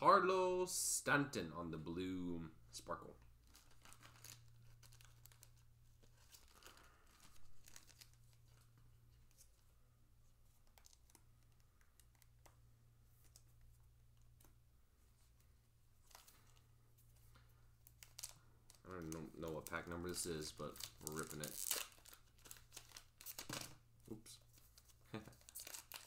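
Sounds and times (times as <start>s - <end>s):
paper card pack crinkling: 3.2s - 9.6s, 10.4s - 12.5s, 16.0s - 23.8s, 24.4s - 26.0s
trading cards rustling and tapping: 10.5s - 12.6s.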